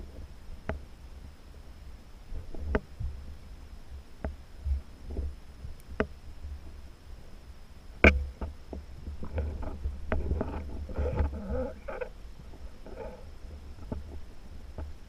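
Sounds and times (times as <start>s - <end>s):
low water rumble: 0.0s - 15.0s
underwater knocks and clicks: 8.0s - 12.1s.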